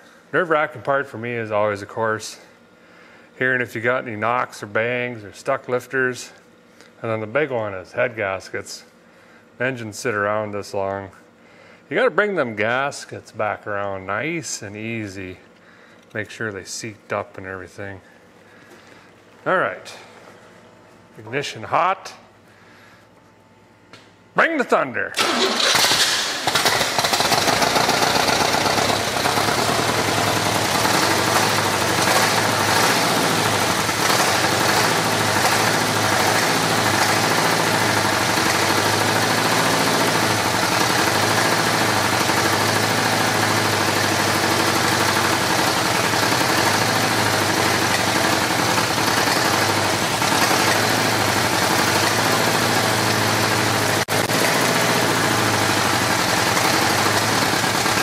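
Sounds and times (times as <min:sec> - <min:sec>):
engine running roughly with popping: 0:25.2 - 0:58.0.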